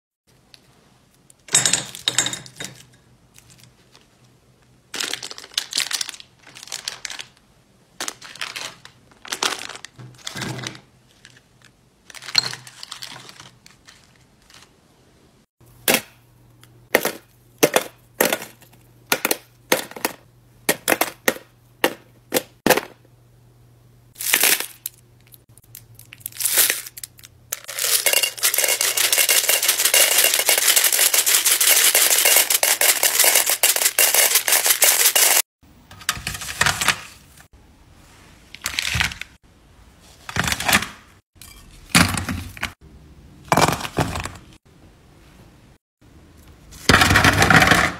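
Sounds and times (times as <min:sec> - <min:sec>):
plastic candy wrappers crinkling: 0:04.9 - 0:10.4, 0:11.1 - 0:14.8, 0:24.2 - 0:35.4
tiny candies rattling onto glass: 0:26.0 - 0:35.4.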